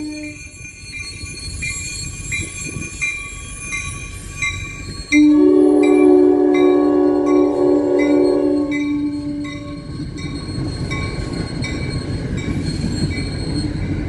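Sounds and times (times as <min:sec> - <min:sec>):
crossing bell dinging: 0:00.0 - 0:14.0
train rumble: 0:00.0 - 0:14.0
train horn blast: 0:05.2 - 0:09.9.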